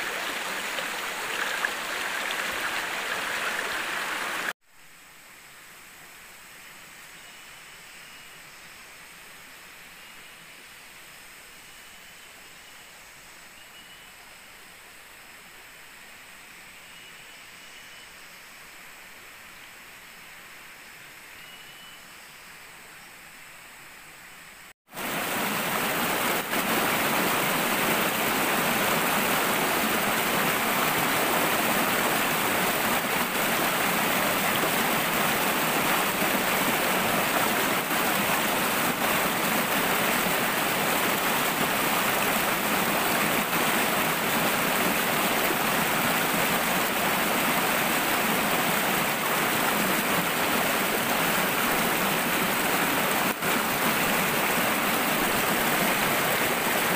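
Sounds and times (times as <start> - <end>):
stream rushing over boulders: 0.0 - 4.6, 24.9 - 56.9
forest ambience: 0.0 - 56.9.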